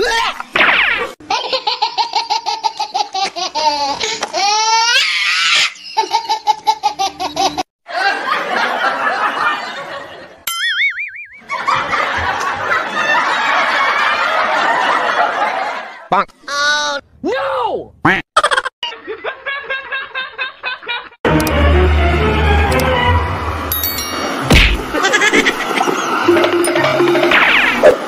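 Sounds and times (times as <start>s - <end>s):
rhythmic belly laugh: 6.0s - 10.3s, 18.4s - 21.2s, 24.9s - 26.0s
crowd laughing: 6.0s - 10.4s, 11.4s - 16.1s, 18.4s - 21.2s, 24.8s - 27.3s
wobbling cartoon sound effect: 10.5s - 11.5s, 24.5s - 28.0s.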